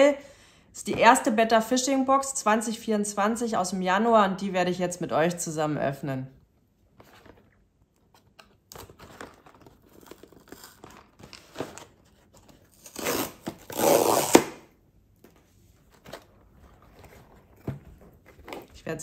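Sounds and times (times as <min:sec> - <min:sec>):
box rustling and scraping: 0:06.9 - 0:13.8, 0:15.2 - 0:18.8
loud tearing rips: 0:12.7 - 0:14.7.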